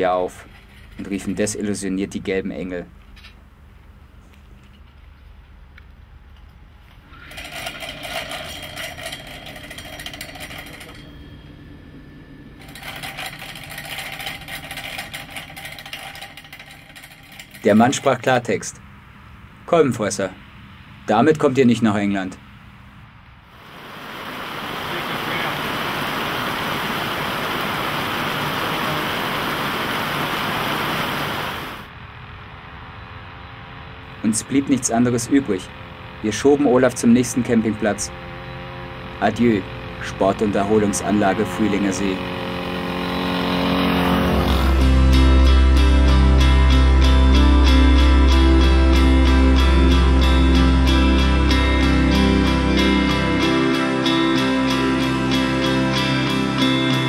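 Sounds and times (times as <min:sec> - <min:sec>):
two-stroke moped engine rattling: 0:00.0 - 0:02.4, 0:07.0 - 0:19.0, 0:24.6 - 0:31.9, 0:33.8 - 0:48.6
heavy rain pouring: 0:23.5 - 0:31.9.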